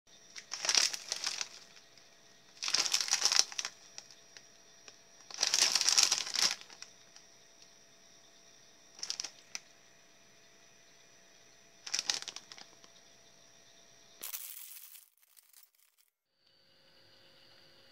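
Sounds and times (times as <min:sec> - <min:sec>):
plastic snack bag crinkling: 0:00.3 - 0:01.9, 0:02.6 - 0:04.2, 0:05.3 - 0:06.9, 0:09.0 - 0:09.6, 0:11.8 - 0:12.9, 0:14.2 - 0:16.1.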